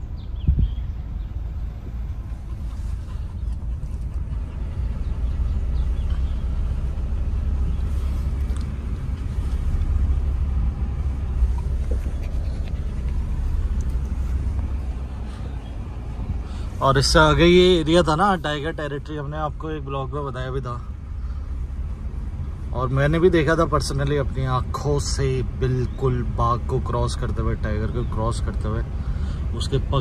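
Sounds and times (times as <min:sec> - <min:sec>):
car engine and tyre rumble: 0:00.0 - 0:30.0.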